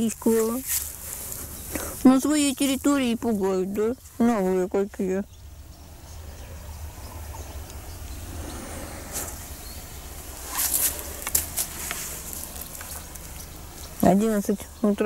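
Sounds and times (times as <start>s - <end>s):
footsteps in grass and leaves: 0.0s - 4.2s, 10.1s - 14.1s
leaves crackling: 0.0s - 5.2s, 6.8s - 14.8s
low steady microphone rumble: 0.0s - 15.0s.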